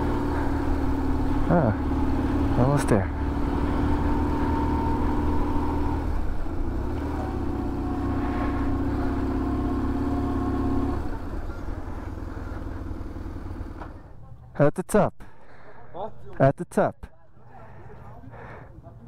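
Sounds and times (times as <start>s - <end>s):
motorcycle engine running: 0.0s - 14.2s.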